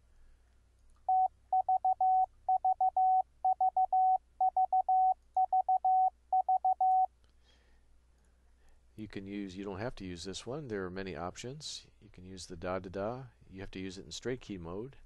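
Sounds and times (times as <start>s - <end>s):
morse code tone: 1.1s - 7.1s.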